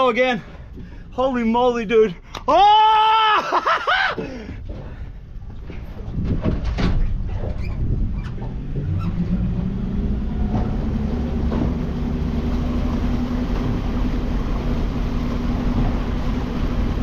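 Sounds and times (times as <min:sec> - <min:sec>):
boat engine running: 0:04.2 - 0:17.0.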